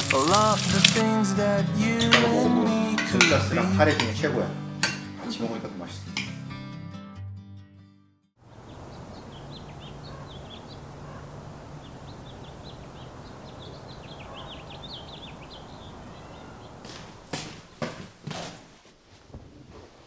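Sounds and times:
background hiss: 0.0 - 1.2
small birds chirping: 8.4 - 17.3.

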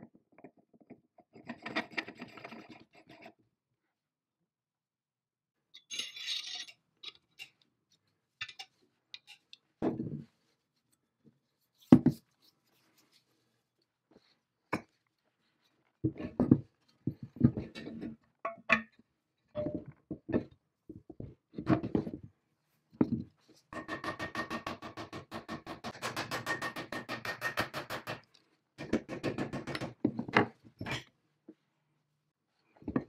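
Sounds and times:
metal parts scraping on wood: 5.8 - 7.6.

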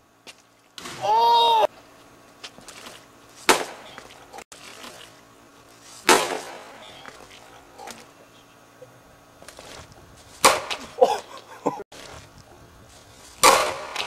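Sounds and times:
plastic bat hitting ball: 10.4 - 10.9, 13.4 - 14.0.

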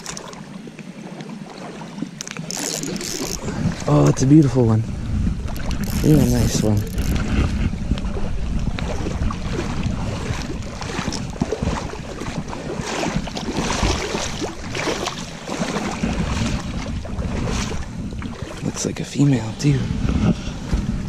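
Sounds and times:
fish splashing in water: 0.0 - 3.9, 8.8 - 18.6
wind buffeting microphone: 2.2 - 21.0.

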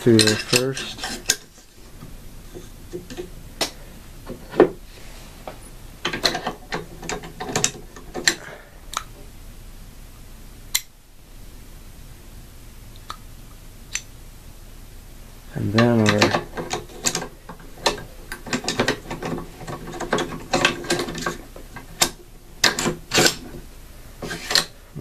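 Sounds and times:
sharp metal clicks and clatter: 15.8 - 23.5.

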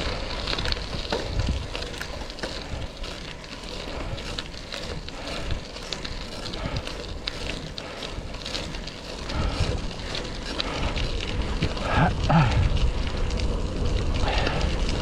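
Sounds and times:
wind on microphone: 0.0 - 3.0, 6.4 - 15.0
bicycle tyres crunching gravel: 0.0 - 15.0.

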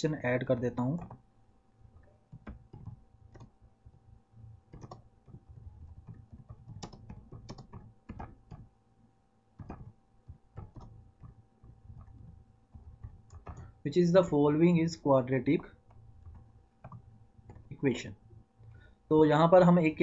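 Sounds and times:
keyboard typing: 0.8 - 1.2, 1.8 - 8.8, 9.6 - 14.3, 15.5 - 18.9.

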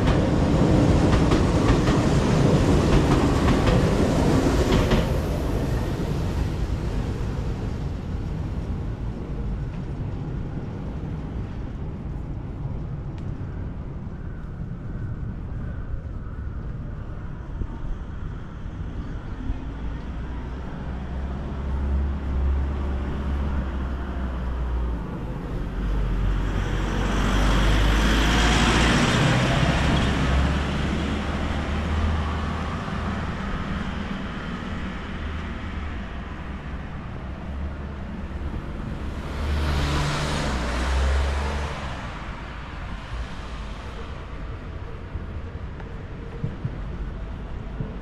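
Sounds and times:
traffic rumble: 0.0 - 48.0
vehicle passing close: 37.7 - 44.3.

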